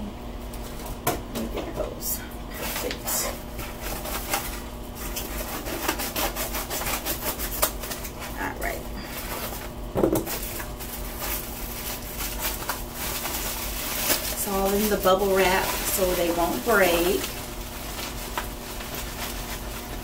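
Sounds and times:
packaging rustling and scraping: 0:02.6 - 0:20.0.

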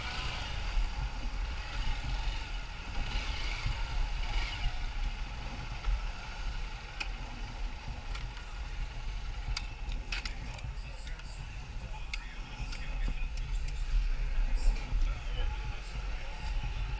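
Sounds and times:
motorcycle engine running: 0:00.0 - 0:16.9.

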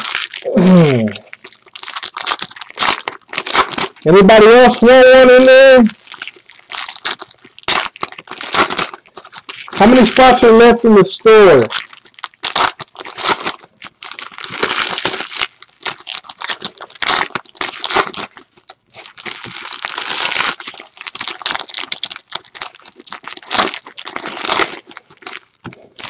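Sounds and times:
foil wrappers tearing and crinkling: 0:00.0 - 0:10.8, 0:11.4 - 0:26.0.

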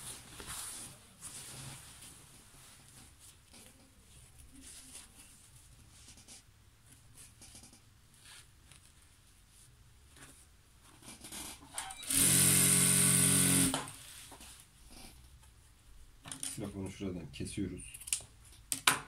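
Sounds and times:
fabric rustling: 0:00.0 - 0:05.7
sewing machine running fast: 0:12.0 - 0:13.8.

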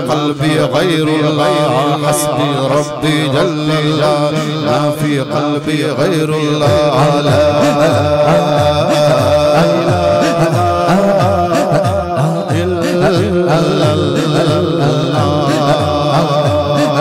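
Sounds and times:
man singing devotional song: 0:00.0 - 0:17.0.

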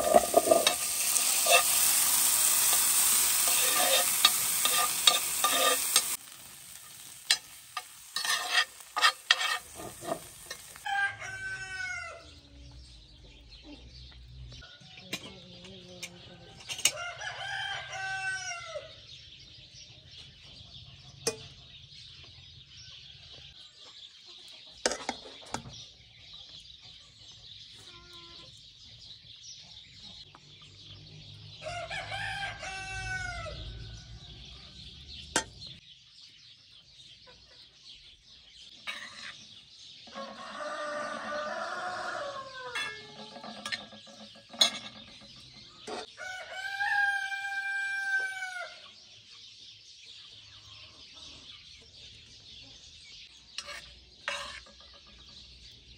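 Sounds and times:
metal spoon clinking on pot: 0:00.0 - 0:01.8, 0:02.6 - 0:06.2, 0:07.2 - 0:10.8, 0:42.7 - 0:46.1
rooster crowing: 0:10.8 - 0:12.3, 0:31.6 - 0:34.1, 0:40.1 - 0:43.2, 0:46.2 - 0:48.8.

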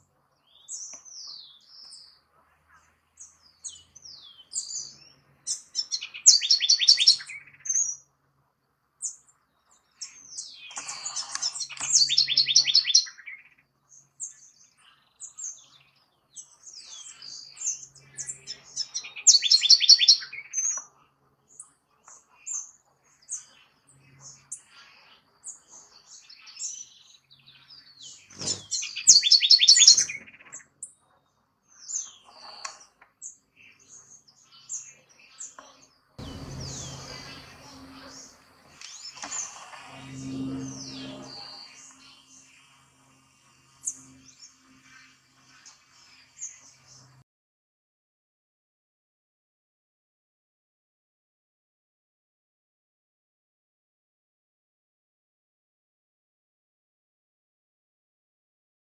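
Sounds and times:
wren singing: 0:00.4 - 0:08.1, 0:09.0 - 0:31.0, 0:31.7 - 0:47.2.

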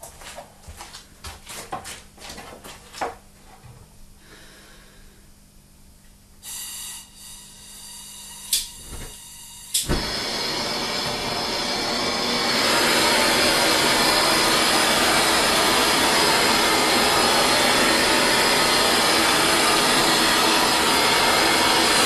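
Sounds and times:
gas torch flame hissing: 0:06.4 - 0:22.0
sharp click: 0:08.5 - 0:08.8
gas torch ignition pop: 0:09.7 - 0:10.2.

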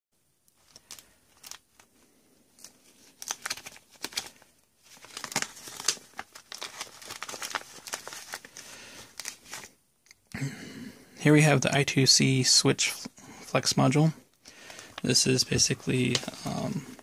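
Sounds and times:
plastic bag crinkling: 0:00.5 - 0:09.8.

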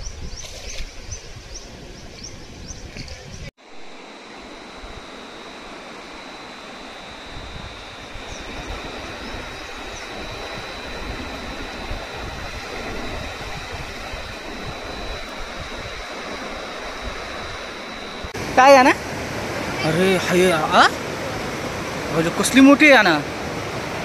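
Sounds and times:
thin high whine: 0:02.8 - 0:24.0
flowing river water: 0:15.2 - 0:24.0.

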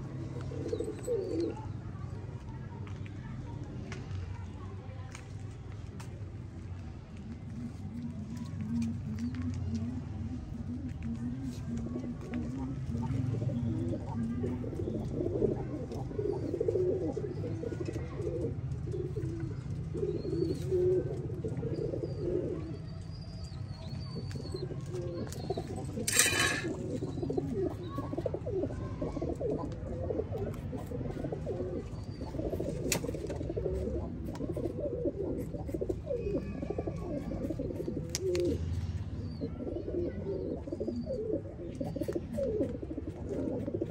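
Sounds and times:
pigeons cooing: 0:00.0 - 0:01.9, 0:07.5 - 0:43.9
small birds chirping: 0:12.6 - 0:29.6, 0:30.5 - 0:43.9.

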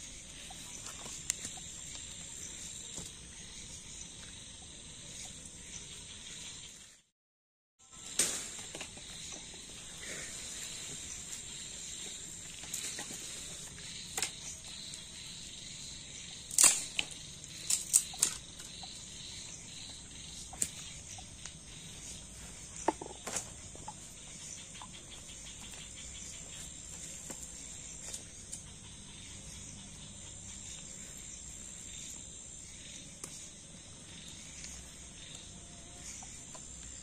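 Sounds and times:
night insects droning: 0:00.0 - 0:07.0, 0:07.8 - 0:37.0
firewood sticks knocking and snapping: 0:16.5 - 0:18.4.

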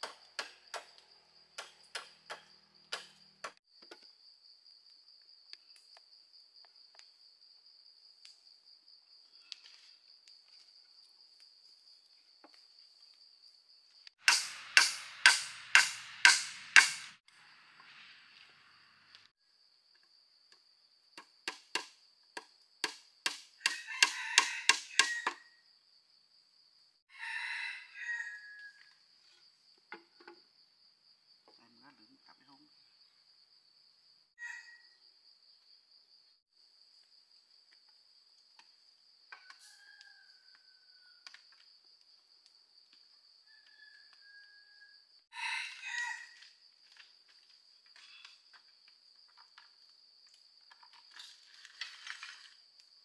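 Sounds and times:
sharp chopping strikes: 0:14.2 - 0:17.2
rooster crowing: 0:23.6 - 0:25.5, 0:27.1 - 0:28.9, 0:34.4 - 0:35.0, 0:39.4 - 0:41.4, 0:43.2 - 0:46.4.

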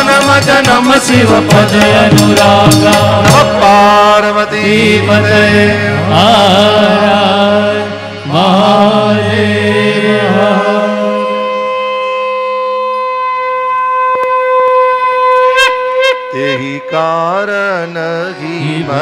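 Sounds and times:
person singing devotional song: 0:00.0 - 0:12.3, 0:16.3 - 0:19.0.

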